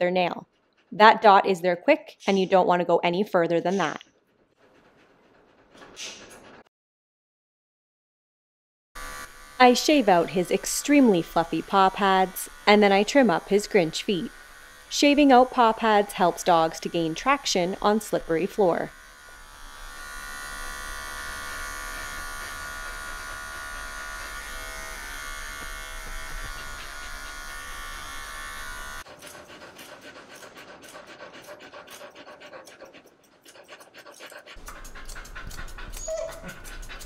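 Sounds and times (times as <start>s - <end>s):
pet clippers buzzing: 9.0s - 32.9s, 34.2s - 37.0s
grooming shears snipping: 21.3s - 37.0s.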